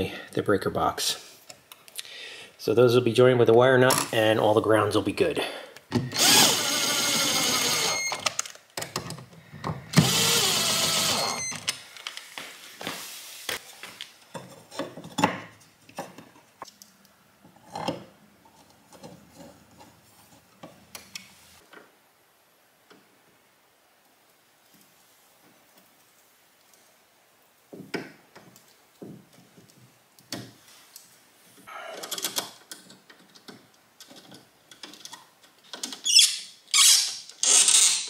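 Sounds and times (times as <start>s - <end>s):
cordless drill whine: 6.2s - 8.3s, 9.9s - 11.6s
handling clicks and knocks: 32.0s - 36.0s.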